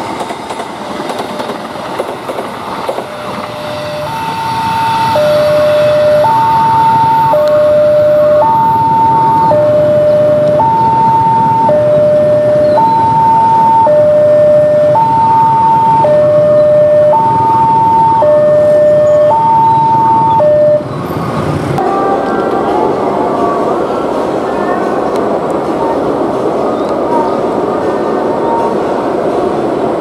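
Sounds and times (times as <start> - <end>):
two-tone warning siren: 3.0 - 20.9, 21.8 - 23.8.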